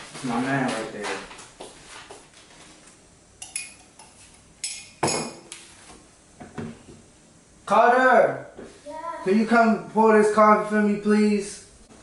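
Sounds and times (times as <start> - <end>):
kitchenware clinking on counter: 3.4 - 5.5.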